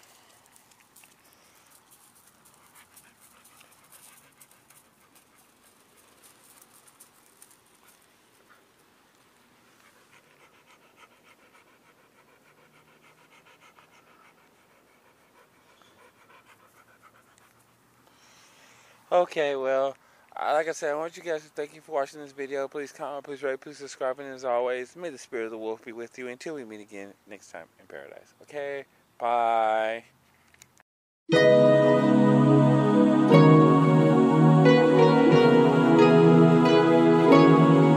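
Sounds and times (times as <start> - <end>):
dog panting: 0.3 - 18.1.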